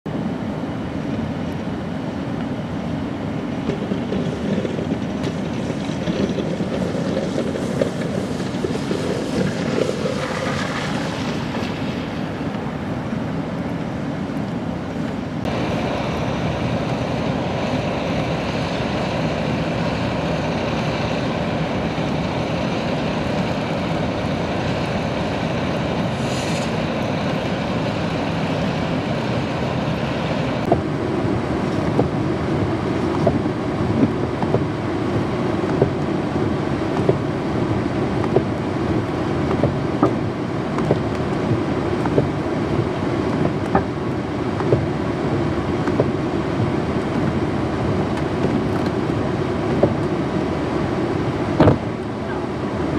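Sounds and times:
wind rushing over microphone: 0.1 - 52.9
idling dump trucks: 3.2 - 13.7, 15.3 - 52.9
short hiss: 26.1 - 26.9.

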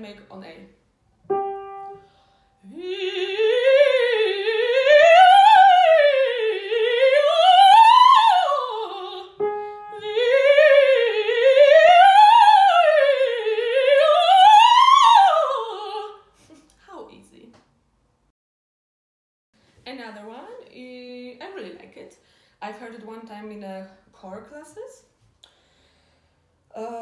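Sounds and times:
woman singing operatic warm-up: 2.6 - 16.3.

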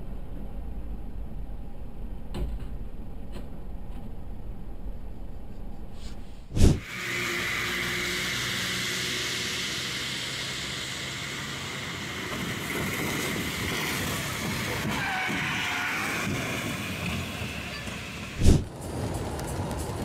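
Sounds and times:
truck engine rumble: 0.0 - 20.0
tyres hissing through water: 6.7 - 13.9.

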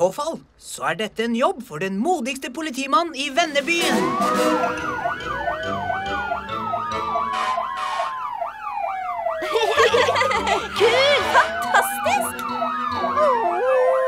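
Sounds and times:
cartoon siren wailing: 3.6 - 14.0.

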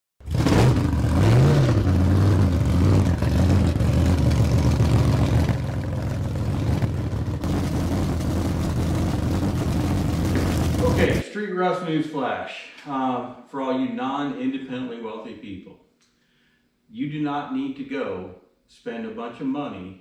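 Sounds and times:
car engine revving: 0.2 - 11.2
car engine rumbling: 0.2 - 11.2.

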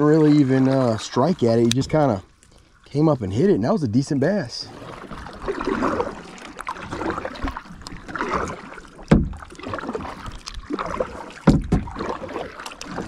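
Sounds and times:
paddle splashing in water: 0.0 - 3.6, 4.2 - 13.0
sharp low thump: 9.1 - 9.4, 11.4 - 12.0.

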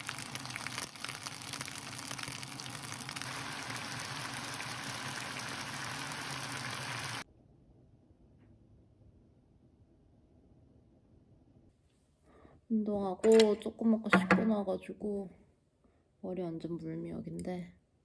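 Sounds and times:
food sizzling in hot pan: 0.0 - 7.2.

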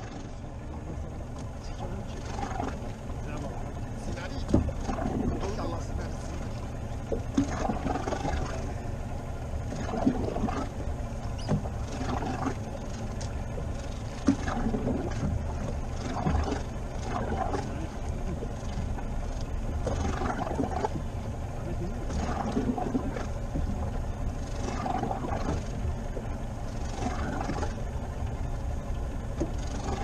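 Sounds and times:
sharp knocks on boat: 0.0 - 8.9, 9.6 - 30.0
low rumble: 0.0 - 30.0
water sloshing against boat hull: 0.0 - 30.0.

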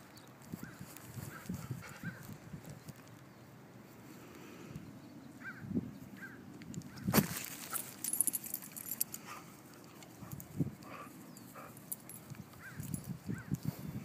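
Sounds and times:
dogs scuffling on grass: 7.1 - 9.0.

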